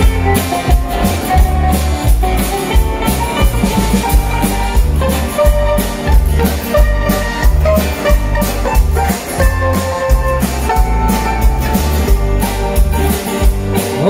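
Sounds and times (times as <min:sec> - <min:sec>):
accordion: 0:00.0 - 0:14.0
acoustic guitars: 0:00.0 - 0:14.0
drum kit beat: 0:00.0 - 0:14.0.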